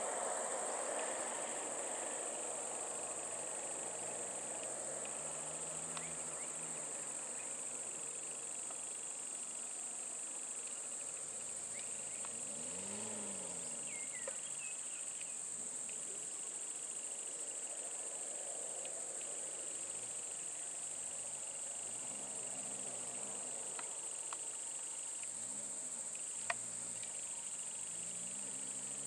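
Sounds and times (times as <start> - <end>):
insects droning: 0.0 - 29.0
bird chirps: 13.9 - 15.4.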